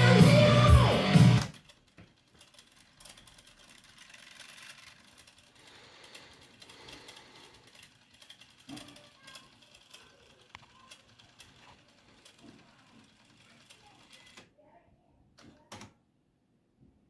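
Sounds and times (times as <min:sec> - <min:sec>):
tape deck winding whir: 0:00.0 - 0:14.5.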